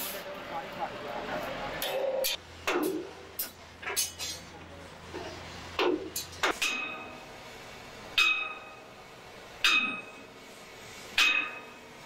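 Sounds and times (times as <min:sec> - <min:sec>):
sledgehammer striking steel: 0:08.2 - 0:08.8, 0:09.6 - 0:10.2, 0:11.2 - 0:11.8.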